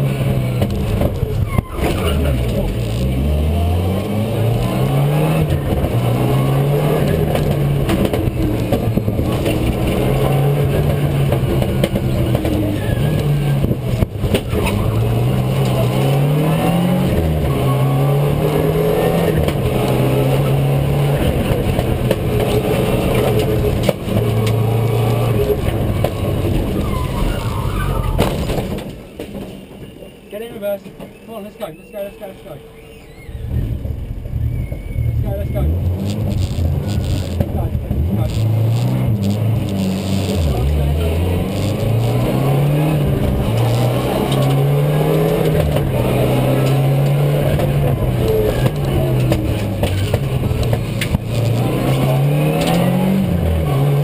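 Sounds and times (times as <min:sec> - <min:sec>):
rally car engine accelerating: 0:00.0 - 0:29.0, 0:33.4 - 0:54.0.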